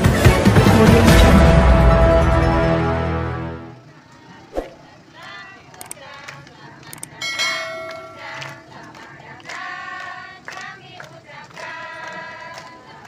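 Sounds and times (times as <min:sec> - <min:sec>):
group singing held notes: 0:04.1 - 0:13.0
hands clapping along: 0:05.7 - 0:13.0.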